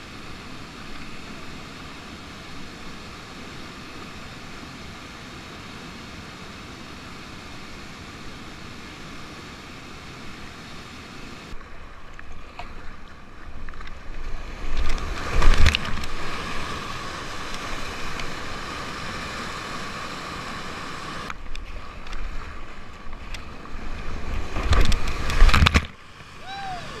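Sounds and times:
whitewater rushing: 14.4 - 27.0.

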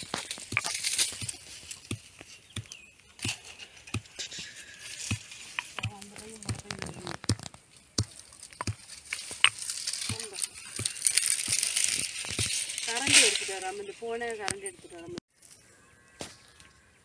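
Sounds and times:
pestle thumping in mortar: 5.0 - 10.1.

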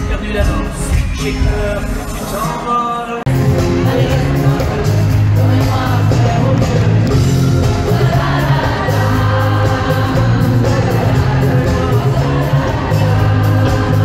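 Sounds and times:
live pop music: 0.0 - 14.0
prominent bass line: 3.3 - 14.0.

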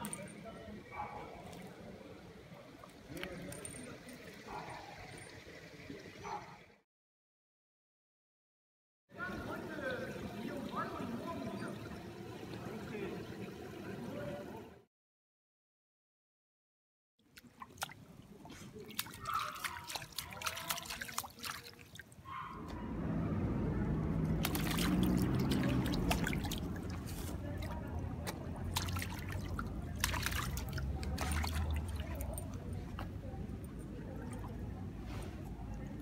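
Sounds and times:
water trickling in gutter: 0.0 - 6.6, 9.2 - 14.8, 17.2 - 22.6, 23.9 - 36.0
dog splashing in water: 17.4 - 22.1, 24.2 - 33.2.

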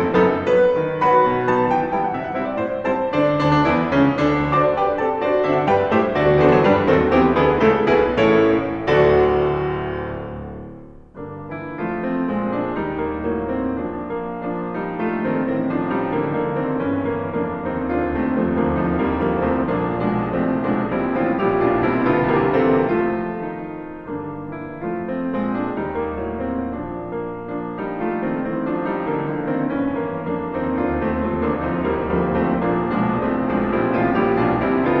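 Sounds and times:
solo piano music: 0.0 - 35.0.

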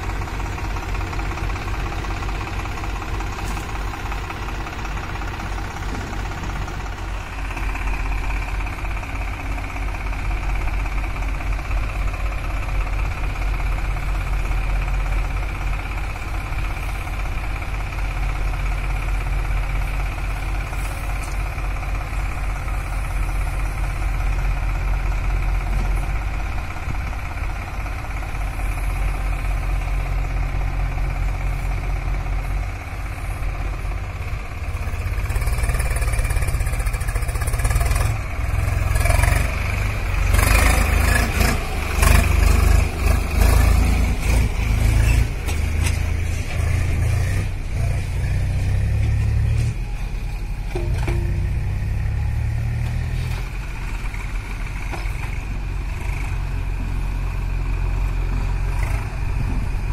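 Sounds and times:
diesel engines running: 0.0 - 59.9
backhoe digging soil: 0.1 - 7.8, 35.1 - 57.4.

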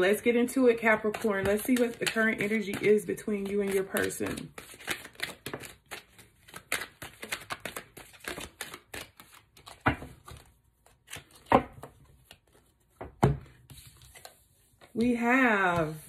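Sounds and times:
cards being shuffled: 0.9 - 16.0.

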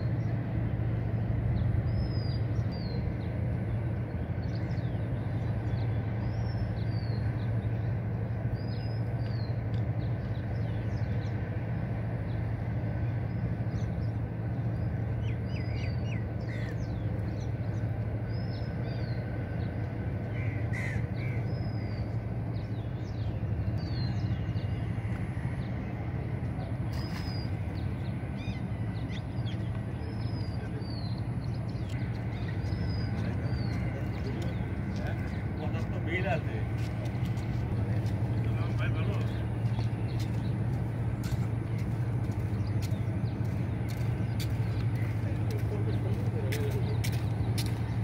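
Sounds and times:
birds calling: 0.0 - 48.0
steady low hum: 0.0 - 48.0.

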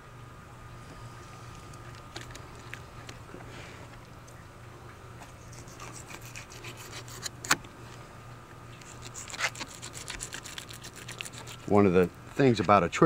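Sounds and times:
knife scraping against bone and scales: 5.4 - 7.6, 8.8 - 12.1.

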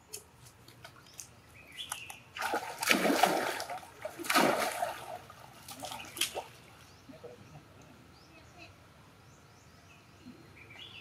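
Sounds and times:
monkeys splashing in water: 2.4 - 6.8.

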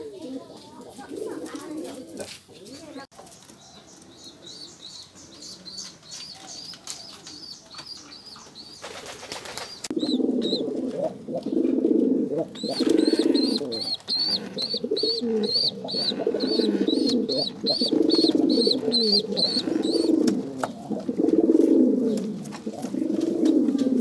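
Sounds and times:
pigeons low pulsing calls: 0.0 - 24.0
wing flapping: 8.8 - 9.9
squab peeping: 12.5 - 20.8.

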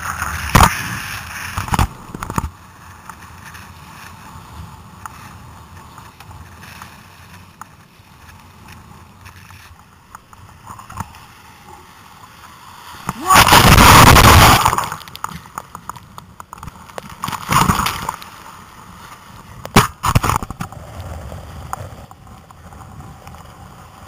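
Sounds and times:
water slapping kayak hull: 0.0 - 20.9
breaking wave crash: 12.9 - 15.1.

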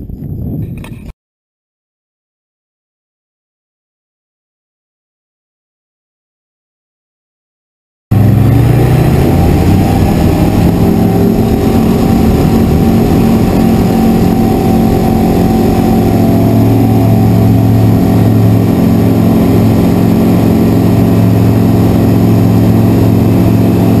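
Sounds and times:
light aircraft engine and propeller: 8.1 - 24.0.

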